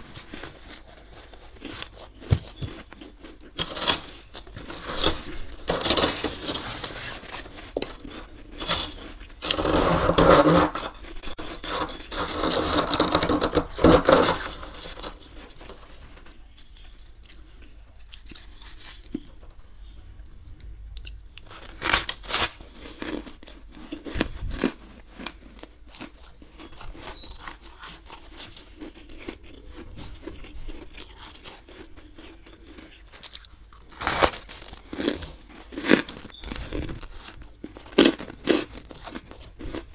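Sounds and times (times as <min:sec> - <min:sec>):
metal spoon scraping frost: 0:03.5 - 0:17.1, 0:18.1 - 0:20.0, 0:26.6 - 0:31.8.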